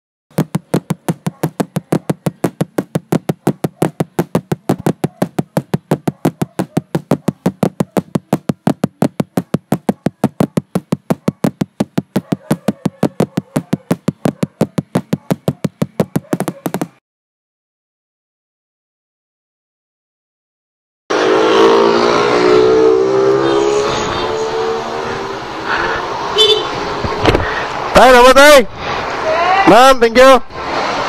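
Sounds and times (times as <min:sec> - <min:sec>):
music with fast percussive beat: 0:00.3 - 0:17.0.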